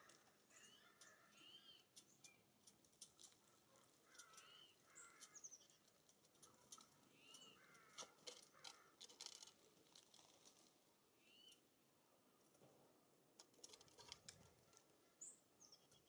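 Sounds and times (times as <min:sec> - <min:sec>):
birds pecking at feeders: 0:00.0 - 0:16.0
harsh songbird calls: 0:00.5 - 0:02.4, 0:04.1 - 0:05.8, 0:07.1 - 0:08.0.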